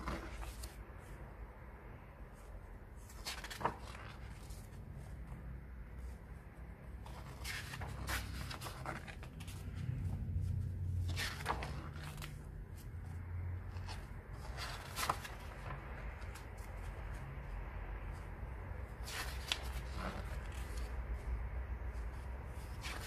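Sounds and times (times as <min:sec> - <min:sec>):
paper pages turning: 0:00.0 - 0:01.2, 0:03.0 - 0:05.1, 0:06.9 - 0:17.3, 0:18.1 - 0:21.3, 0:21.9 - 0:23.0
low steady rumble: 0:00.0 - 0:23.0.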